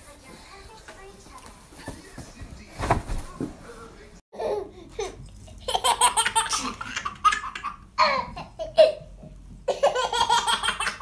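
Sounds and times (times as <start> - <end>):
baby laughing: 4.4 - 9.1, 9.7 - 11.0.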